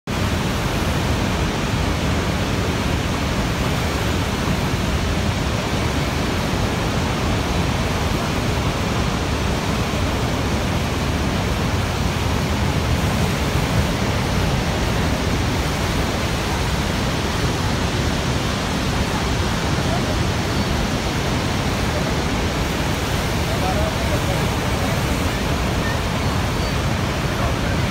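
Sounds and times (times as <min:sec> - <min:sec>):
waterfall rushing: 0:00.1 - 0:27.9.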